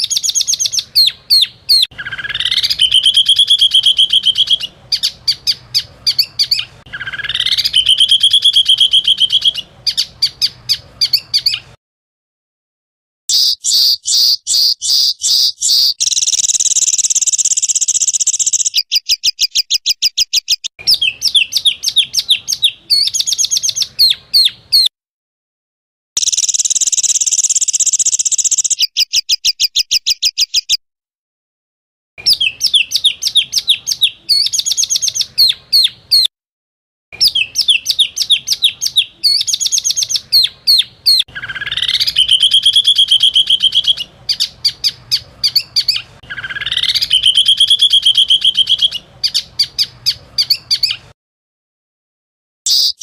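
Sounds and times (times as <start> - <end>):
songbird chirps and trills: 0.0 - 11.8, 13.3 - 24.9, 26.2 - 30.8, 32.2 - 36.3, 37.2 - 51.1.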